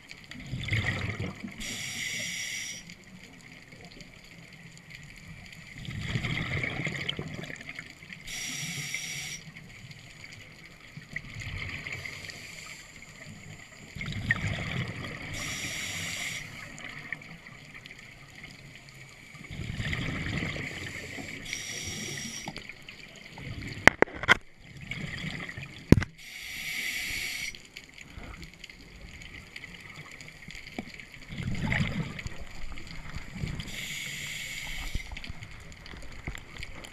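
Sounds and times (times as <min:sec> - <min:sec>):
exhaled bubbles gurgling: 0:00.0 - 0:36.9
regulator breathing hiss: 0:01.6 - 0:03.0, 0:08.3 - 0:09.6, 0:12.1 - 0:13.6, 0:15.3 - 0:16.8, 0:20.7 - 0:22.6, 0:26.2 - 0:27.7, 0:33.6 - 0:35.2.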